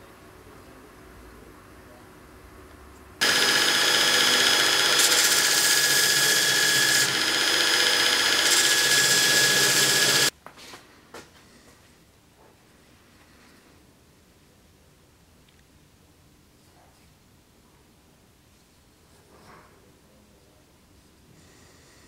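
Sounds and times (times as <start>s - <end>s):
belt grinder grinding: 3.2s - 10.3s.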